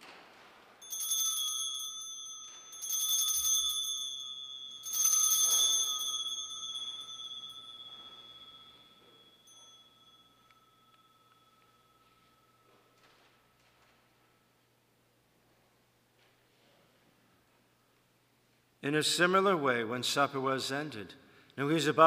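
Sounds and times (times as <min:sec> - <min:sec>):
altar bells ringing: 0:00.8 - 0:14.0.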